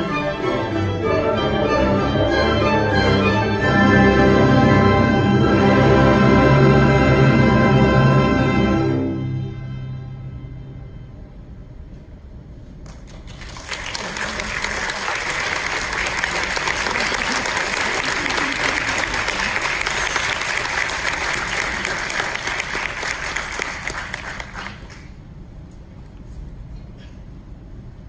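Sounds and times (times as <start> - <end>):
audience applauding: 12.9 - 25.2.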